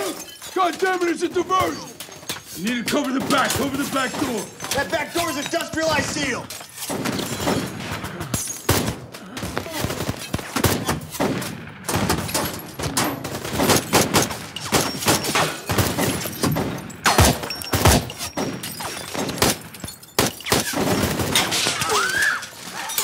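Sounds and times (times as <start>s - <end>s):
gunfire bursts: 5.8s - 21.6s.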